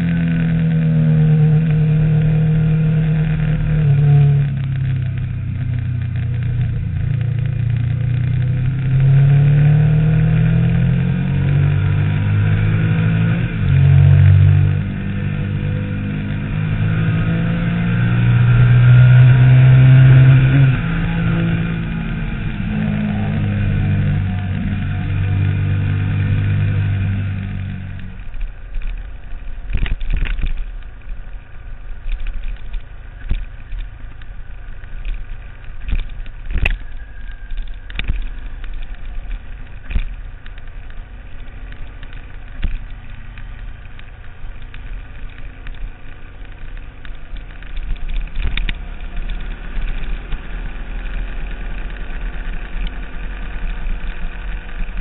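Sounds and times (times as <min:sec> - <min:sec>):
motorcycle engine running hard: 0:00.0 - 0:55.0.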